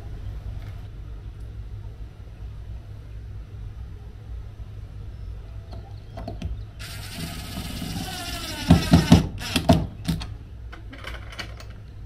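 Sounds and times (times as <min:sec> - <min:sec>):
impact driver whining and hammering: 0:06.8 - 0:10.3.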